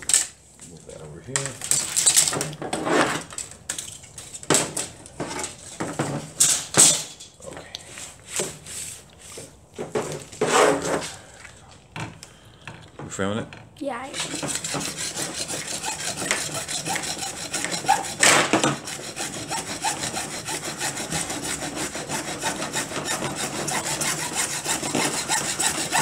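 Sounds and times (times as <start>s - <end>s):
hacksaw cutting plastic pipe: 14.1s - 26.0s.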